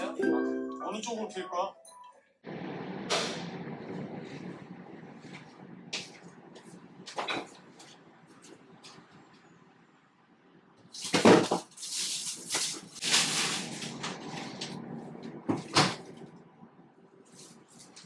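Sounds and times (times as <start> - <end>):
plastic bags rustling: 11.0 - 14.0.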